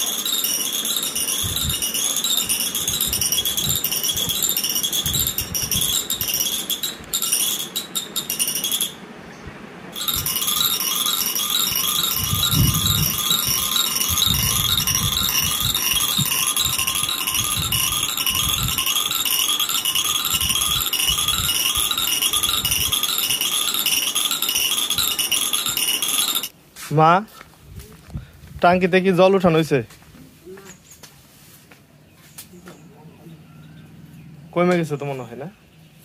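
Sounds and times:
musical toy tinkling tune: 0.0 - 9.0, 10.0 - 26.5.

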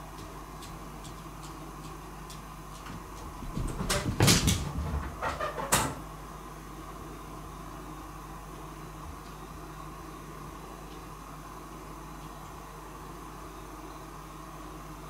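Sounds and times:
cat knocking and scuffing: 2.9 - 5.9.

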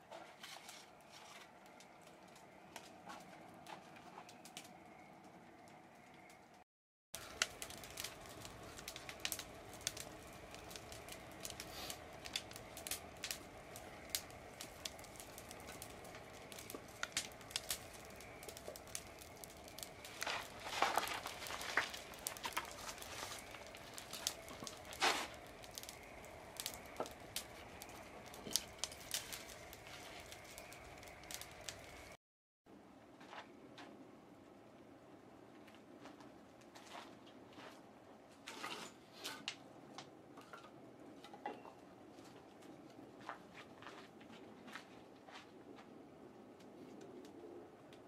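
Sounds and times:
wood slats rustling and scraping: 0.0 - 1.6, 38.4 - 39.5
burning wood crackling and popping: 0.1 - 6.6, 7.2 - 32.2, 39.3 - 48.0.

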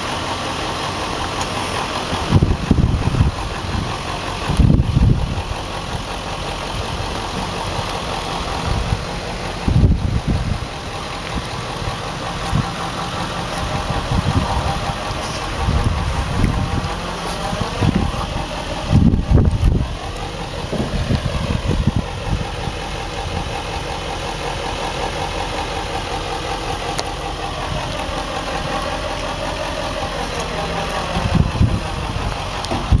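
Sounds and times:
train wheels rumbling: 0.0 - 33.0
heavy low thumps: 2.2 - 6.0, 7.3 - 23.8, 31.0 - 33.0.

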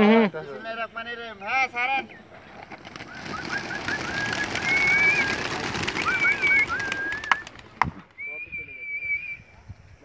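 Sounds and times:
pigeon wings flapping: 2.4 - 8.2.

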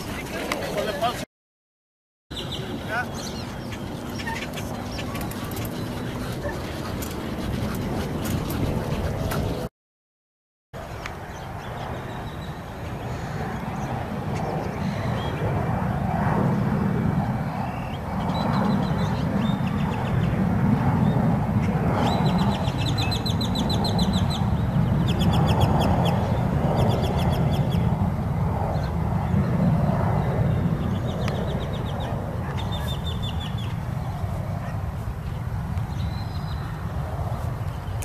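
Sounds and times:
bird chattering trills: 2.4 - 9.0
wind buffeting microphone: 2.4 - 9.7, 11.4 - 38.0.

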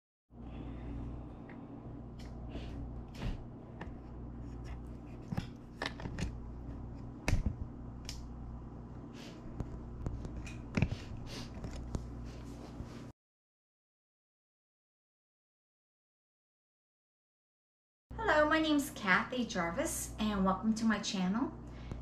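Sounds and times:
steady low hum: 0.3 - 13.1, 18.1 - 22.0.

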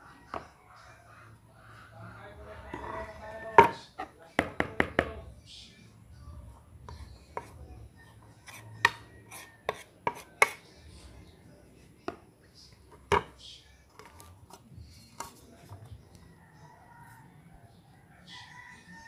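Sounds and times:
utensil knocking on a plate: 3.5 - 3.8, 13.1 - 13.3.

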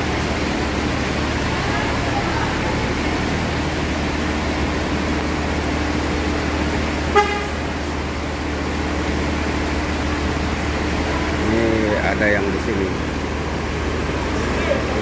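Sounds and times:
diesel engine idling: 0.0 - 15.0
rain hiss: 0.0 - 15.0
short horn beep: 7.1 - 7.6.

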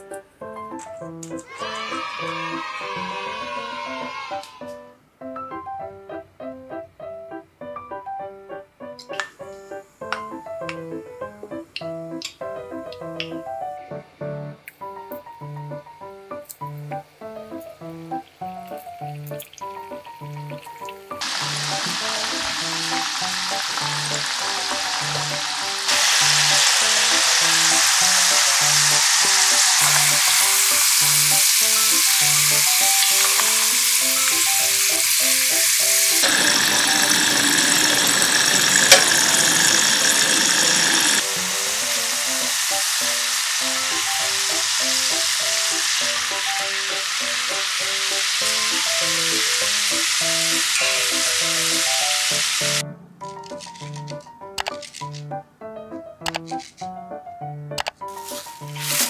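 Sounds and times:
fries sizzling in hot oil: 0.8 - 4.5, 17.4 - 52.8, 58.1 - 59.0.

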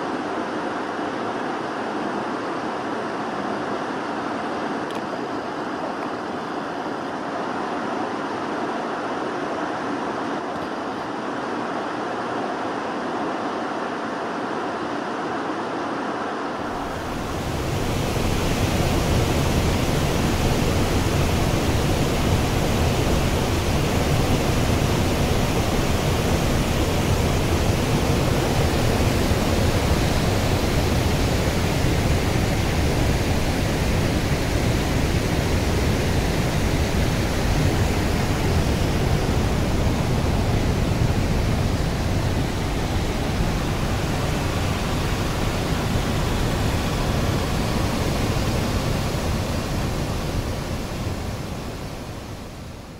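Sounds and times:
water rushing over a weir: 16.6 - 52.6.

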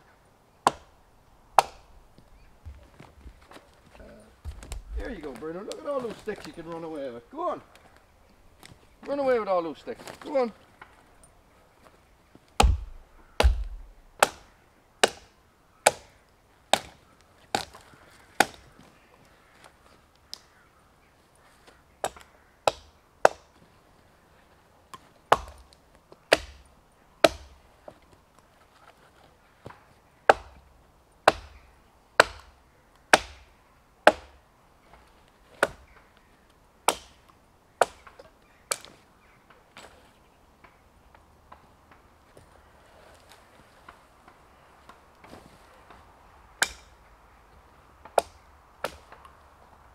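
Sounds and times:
axe chopping branches: 0.6 - 0.9, 1.6 - 1.9, 12.6 - 16.1, 16.7 - 18.7, 22.0 - 23.6, 25.3 - 28.0, 29.7 - 30.6, 31.2 - 31.6, 32.2 - 35.8, 36.9 - 39.0, 46.6 - 47.0, 48.0 - 49.3.

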